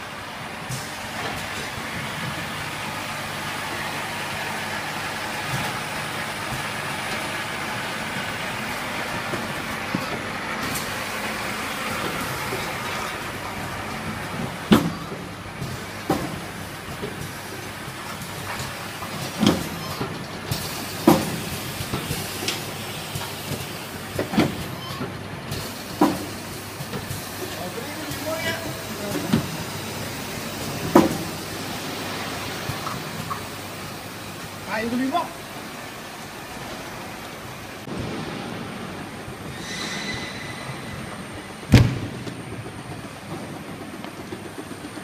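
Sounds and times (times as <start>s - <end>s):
machine humming and hissing: 0.0s - 45.0s
loud clunk: 37.9s - 42.7s
high squeal: 39.5s - 41.7s.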